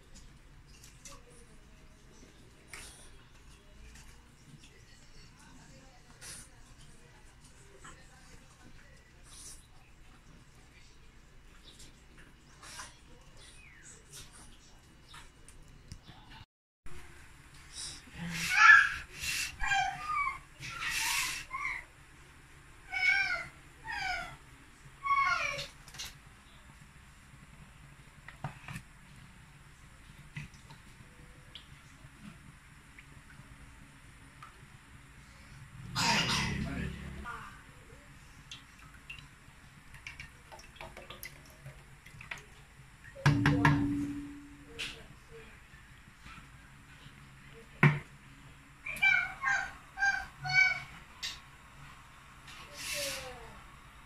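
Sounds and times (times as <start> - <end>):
short ringing hum: 43.3 - 44.8.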